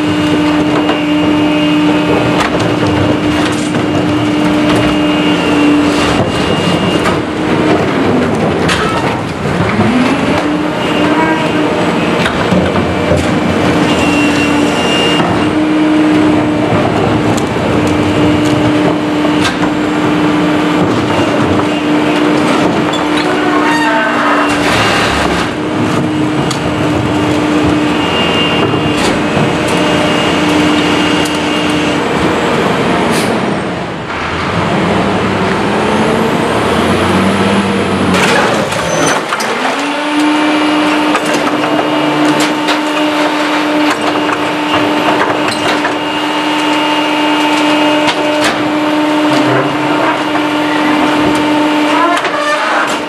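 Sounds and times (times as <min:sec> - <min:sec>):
garbage truck engine hum: 0:00.0 - 0:53.0
carts tipped into hopper: 0:16.2 - 0:31.0.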